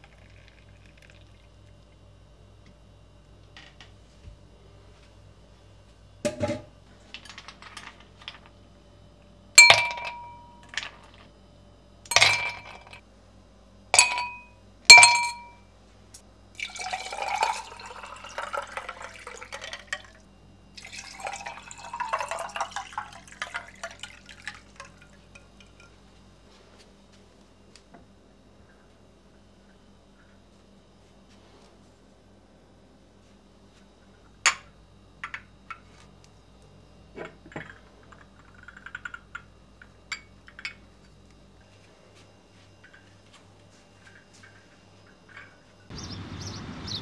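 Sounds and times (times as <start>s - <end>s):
dishes clattering: 9.6s - 11.2s, 12.1s - 13.0s, 14.0s - 15.6s
dishes clinking: 9.6s - 11.2s, 12.1s - 13.0s, 14.0s - 15.6s.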